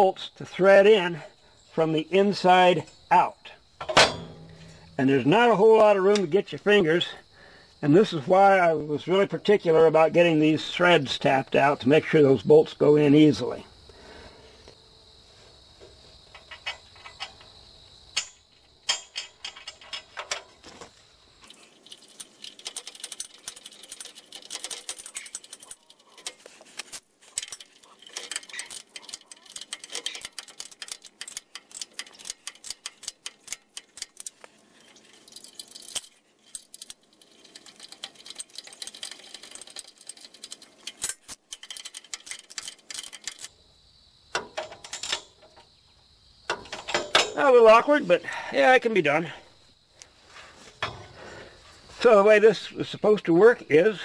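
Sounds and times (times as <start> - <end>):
hand ratchet clicking: 21.9 - 43.5.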